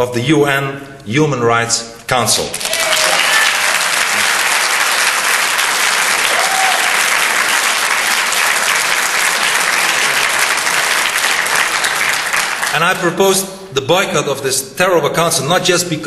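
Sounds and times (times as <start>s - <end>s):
audience applauding: 2.5s - 13.0s.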